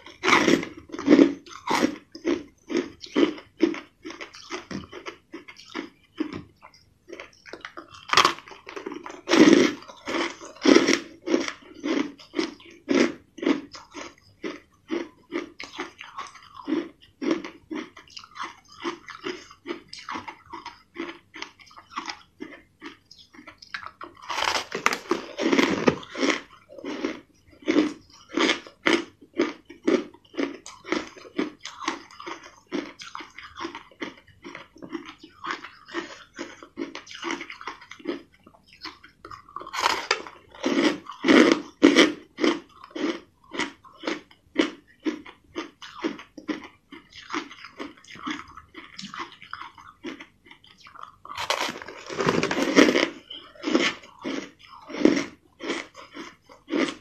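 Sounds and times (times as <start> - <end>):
crushed ice being chewed: 0.0 - 57.0.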